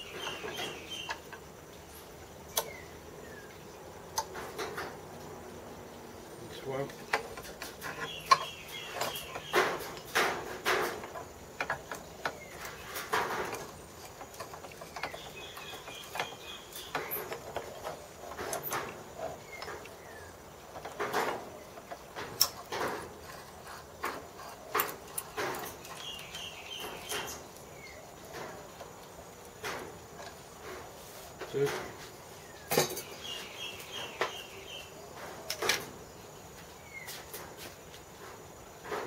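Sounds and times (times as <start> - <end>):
bird chirping: 0.0 - 3.8, 6.3 - 10.9, 11.9 - 21.9, 24.8 - 28.8, 32.3 - 37.2
metal parts clicking and knocking: 20.7 - 27.5.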